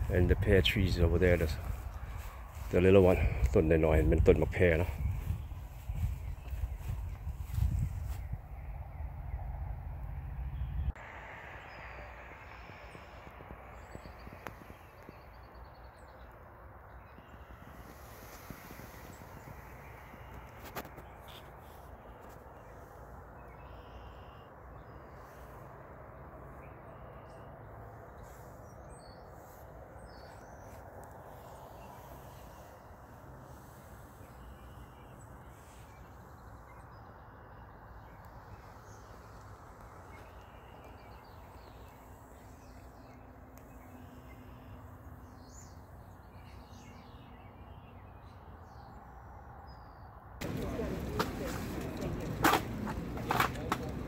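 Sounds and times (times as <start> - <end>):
small birds chirping: 0.0 - 9.5, 11.6 - 25.8, 26.5 - 54.0
low background noise: 50.4 - 54.0
low outdoor rumble: 50.4 - 54.0.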